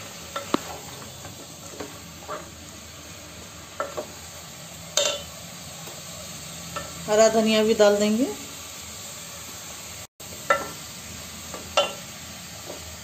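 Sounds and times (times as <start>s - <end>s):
pods sizzling in oil: 0.0s - 13.0s
spatula scraping and knocking pot: 0.3s - 2.6s.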